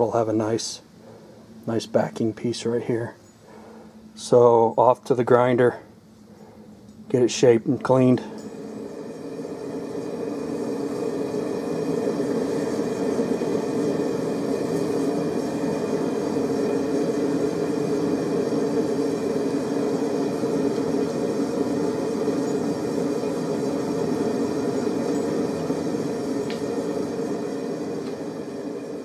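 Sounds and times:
forge roaring: 0:06.6 - 0:29.0.

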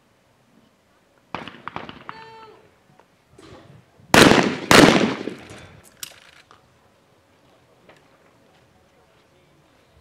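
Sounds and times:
shotgun shots with echo: 0:04.1 - 0:05.6.

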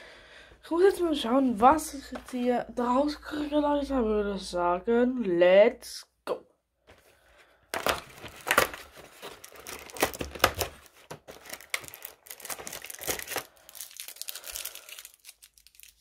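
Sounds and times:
cardboard tearing and crinkling: 0:07.8 - 0:16.0.

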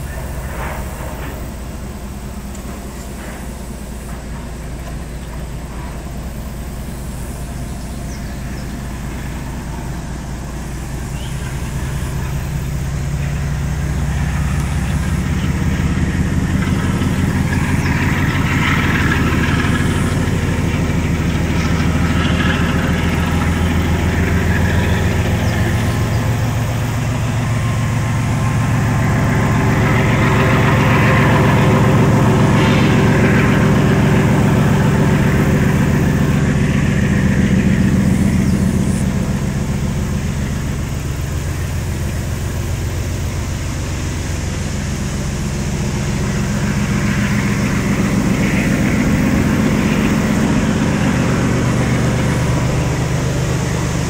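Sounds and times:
diesel locomotive engine chugging: 0:00.0 - 0:54.0.

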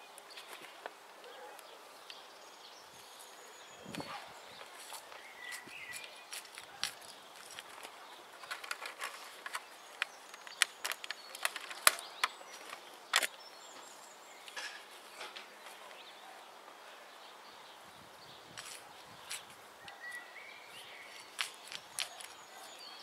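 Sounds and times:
soil rustling by hand: 0:03.0 - 0:14.0, 0:18.5 - 0:23.0.

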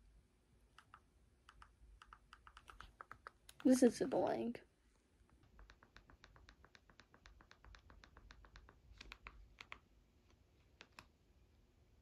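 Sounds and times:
remote buttons clicking: 0:00.7 - 0:03.8.

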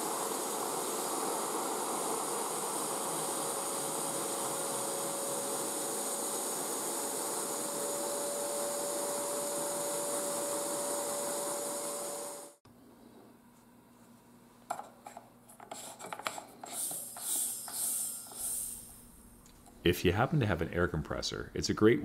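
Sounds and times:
vacuum cleaner running: 0:00.0 - 0:12.6, 0:15.8 - 0:19.2.

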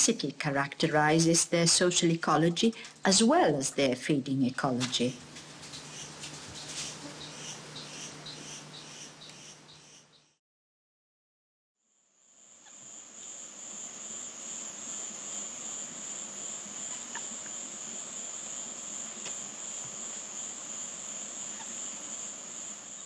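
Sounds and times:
insects trilling: 0:05.7 - 0:10.1, 0:12.2 - 0:23.0.

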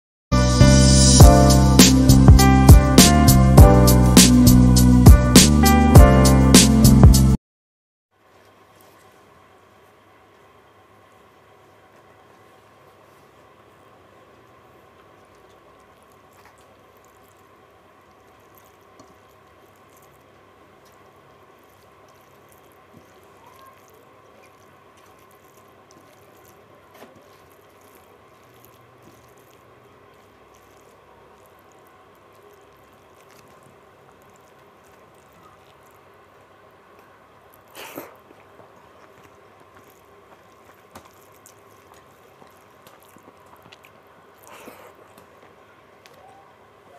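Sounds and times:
low background hum: 0:08.2 - 0:46.9
wet squelching: 0:15.2 - 0:46.2.

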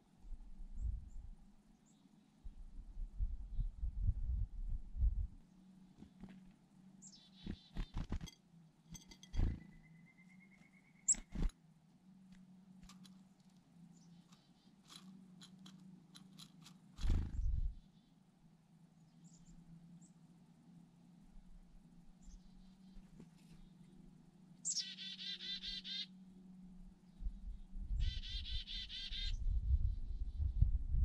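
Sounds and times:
chickadee calling: 0:07.0 - 0:08.2, 0:09.4 - 0:11.5, 0:24.6 - 0:26.1, 0:28.0 - 0:29.4.

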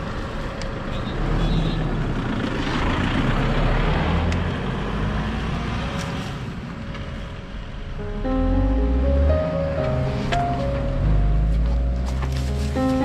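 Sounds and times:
road vehicle passing: 0:00.0 - 0:13.0
background music: 0:07.0 - 0:13.0.

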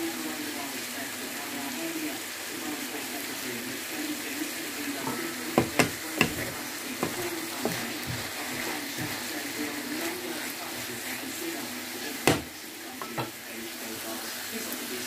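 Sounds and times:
food sizzling in frying pan: 0:00.0 - 0:15.0
spatula knocking against pan: 0:05.1 - 0:09.2, 0:12.2 - 0:13.4.

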